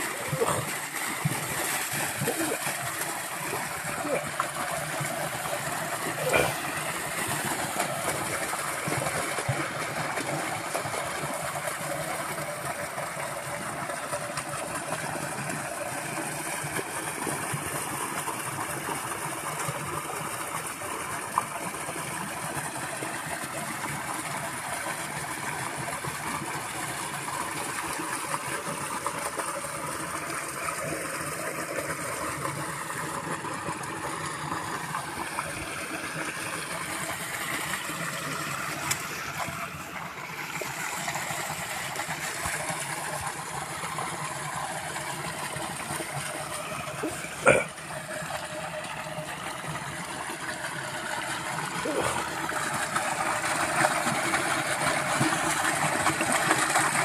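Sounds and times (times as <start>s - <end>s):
water pouring: 0.0s - 11.9s.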